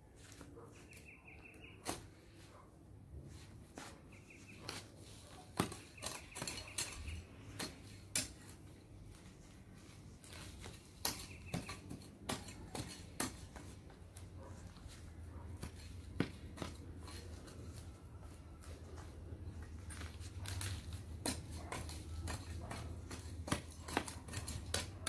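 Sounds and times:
garden tool clicking and scraping: 4.2s - 9.2s, 10.2s - 25.0s.

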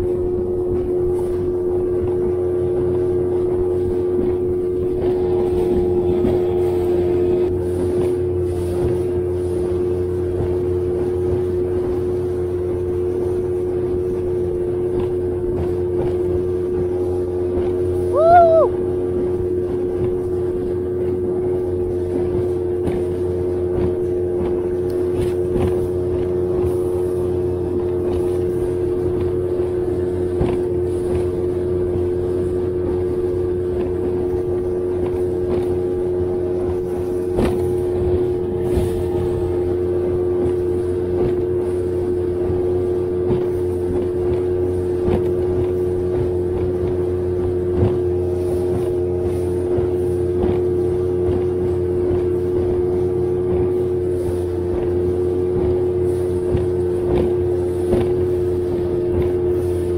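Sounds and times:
outboard motor droning: 0.0s - 59.9s.

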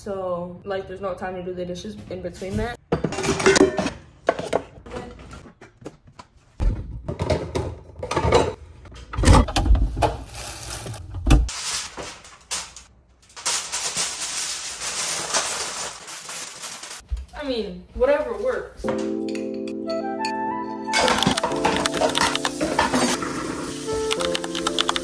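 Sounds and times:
dishes clattering: 2.8s - 5.8s, 6.9s - 9.7s, 21.0s - 23.7s
aluminium foil rustling: 10.1s - 17.1s.

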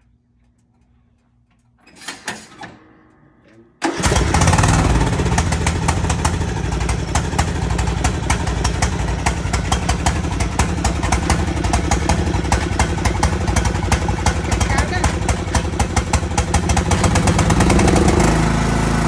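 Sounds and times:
lawn mower engine running: 3.8s - 19.0s.

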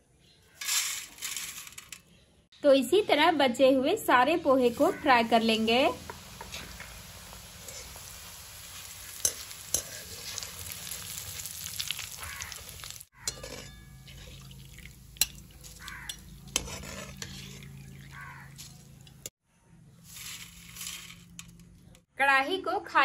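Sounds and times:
food deep-frying in oil: 4.5s - 19.3s
skimmer clinking against pan: 13.2s - 19.3s.

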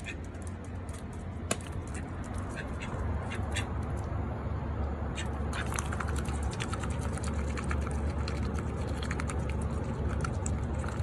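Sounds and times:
steady low hum: 0.0s - 11.0s
duck bill dabbling in food: 5.1s - 11.0s.

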